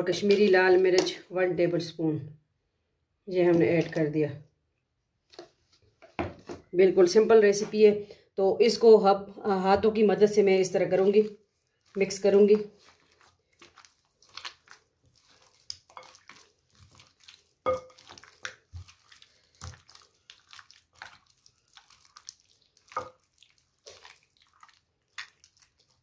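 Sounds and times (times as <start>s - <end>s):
hands squishing wet marinade: 0.0s - 1.2s, 3.3s - 4.3s, 9.9s - 26.0s.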